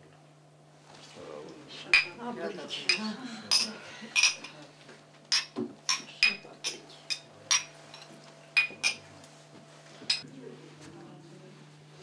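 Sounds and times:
glasses clinking: 2.0s - 2.2s, 2.9s - 4.6s, 5.3s - 9.0s.

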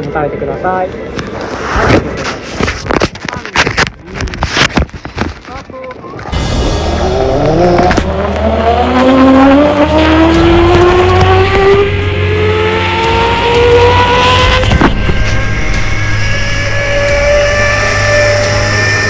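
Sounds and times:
low rumble: 6.2s - 19.0s
zip line pulley whine: 15.2s - 19.0s.

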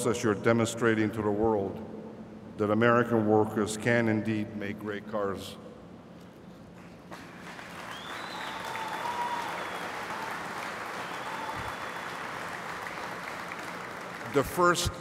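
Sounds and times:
audience applauding: 7.1s - 14.5s.

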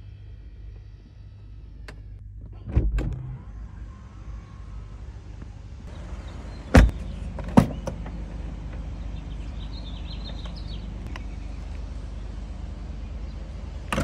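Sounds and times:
steady low rumble: 0.0s - 14.0s
car door and trunk thudding shut: 6.7s - 8.0s.

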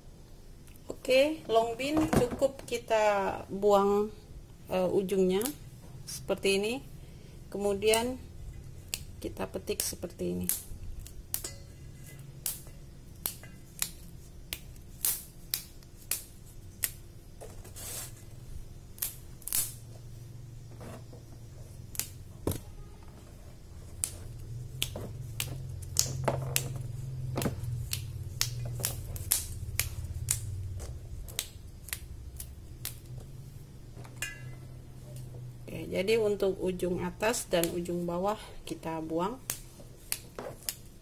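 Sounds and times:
low steady hum: 0.0s - 41.0s
beans snapping by hand: 5.3s - 6.2s, 7.7s - 20.7s, 21.3s - 22.7s, 23.7s - 35.6s, 36.9s - 41.0s.

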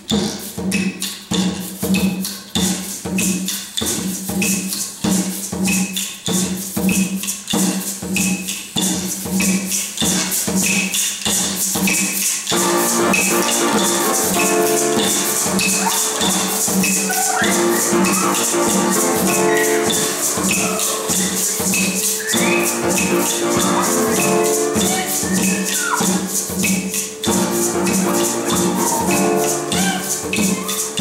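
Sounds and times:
conga drum beat: 0.0s - 31.0s
rattling percussion: 0.0s - 31.0s
choir singing sustained chords: 12.6s - 24.8s.

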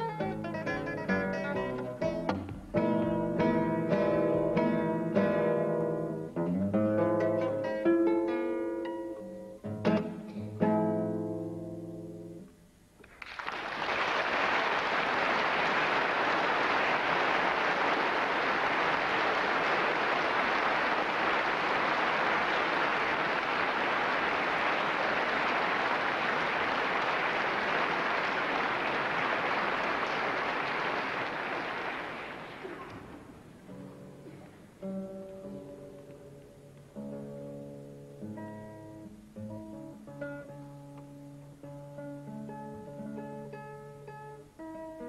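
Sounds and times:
classical guitar: 0.0s - 13.1s, 18.8s - 45.0s
audience applauding: 13.0s - 33.4s.

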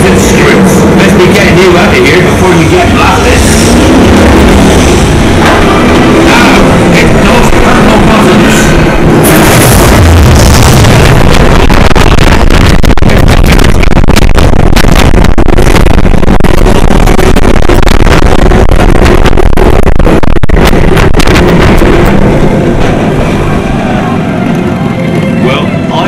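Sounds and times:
roller coaster train running: 0.0s - 13.9s, 20.6s - 26.0s
wind noise on microphone: 2.0s - 24.1s.

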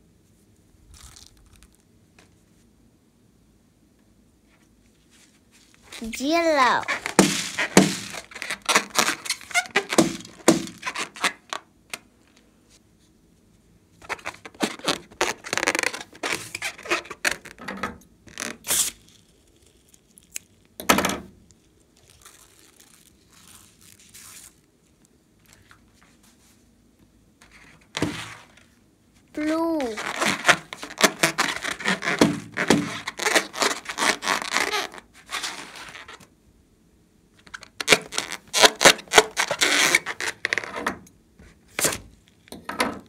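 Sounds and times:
rubber balloon squeaking and scraping: 5.9s - 11.6s, 14.0s - 17.6s, 29.4s - 36.2s, 37.5s - 40.8s.

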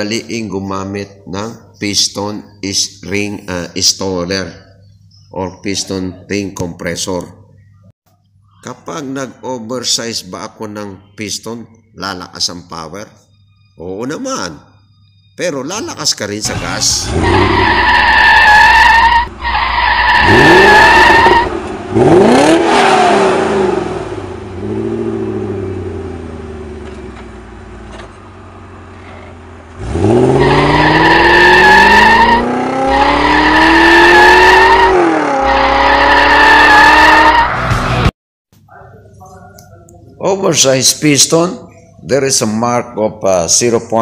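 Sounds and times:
tyres squealing: 16.4s - 21.5s
car engine revving: 16.4s - 38.1s.

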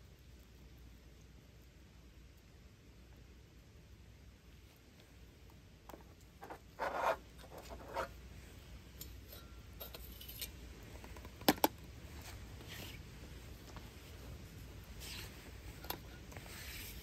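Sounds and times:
metal scrape: 6.4s - 8.2s, 8.9s - 10.6s, 15.0s - 17.0s.

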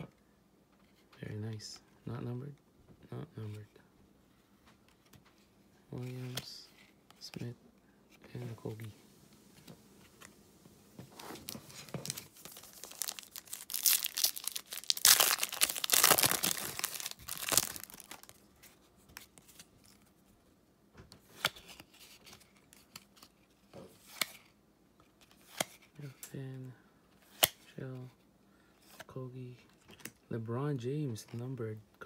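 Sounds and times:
cards being leafed through: 11.1s - 20.0s, 21.2s - 24.5s, 25.2s - 25.9s
foil pack tearing and crinkling: 11.4s - 18.4s.

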